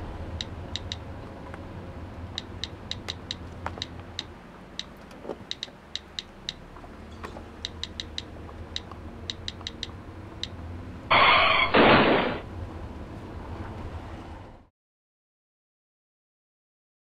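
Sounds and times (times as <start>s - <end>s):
car cabin hum: 0.0s - 11.2s
phone keyboard clicks: 0.4s - 1.0s, 2.3s - 6.7s, 7.6s - 10.6s
loud burst of noise: 11.1s - 12.5s.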